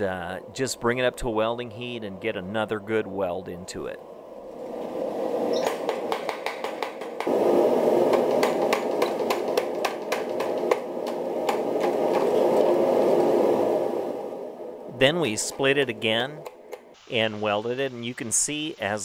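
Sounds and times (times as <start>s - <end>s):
power hammer pounding steel: 5.8s - 12.2s
steady machine noise: 7.0s - 19.0s.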